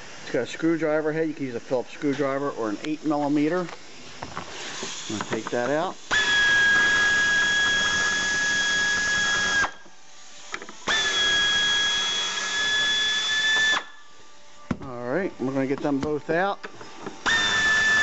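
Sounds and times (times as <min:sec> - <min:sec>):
power drill whine: 0:04.2 - 0:14.1, 0:16.8 - 0:18.0.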